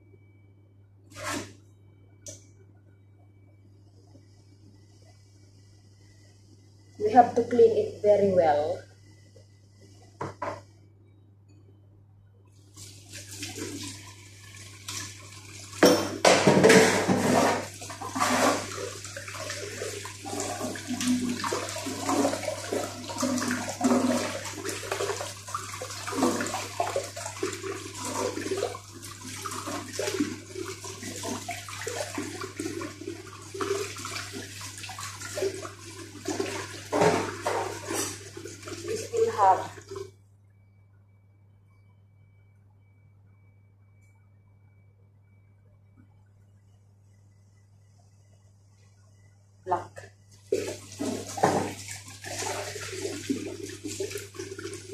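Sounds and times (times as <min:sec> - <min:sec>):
tap water splashing into sink: 0:33.6 - 0:40.0, 0:50.5 - 0:54.8.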